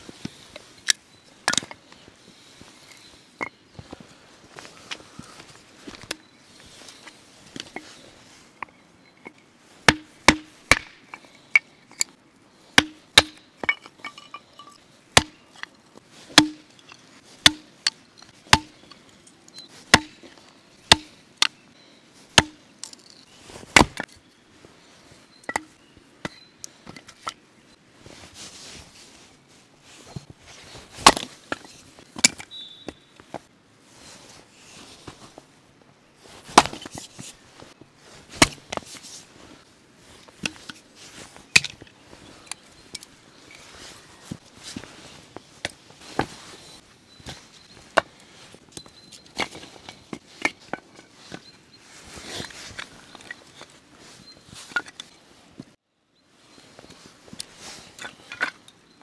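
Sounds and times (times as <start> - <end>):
hatchet splitting wood: 9.9 - 11.0, 12.8 - 13.4, 15.2 - 15.4, 16.3 - 16.7, 17.4 - 17.7, 18.5 - 18.8, 19.9 - 20.2, 20.9 - 21.2, 22.4 - 22.6.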